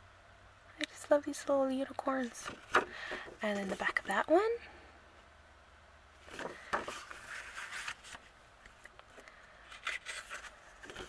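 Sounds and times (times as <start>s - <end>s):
paper rustling and sliding: 2.2s - 4.1s, 6.2s - 8.3s, 9.6s - 11.0s.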